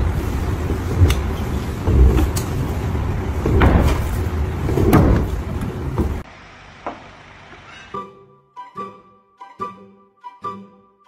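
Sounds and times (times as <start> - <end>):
pneumatic ram rumble: 0.0 - 6.2
sharp knocks: 3.4 - 6.2.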